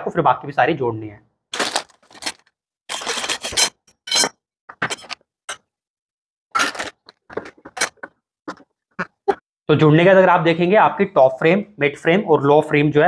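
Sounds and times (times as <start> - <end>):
plastic wrap rustling: 1.6 - 3.6
metal rods scraping: 2.9 - 5.6.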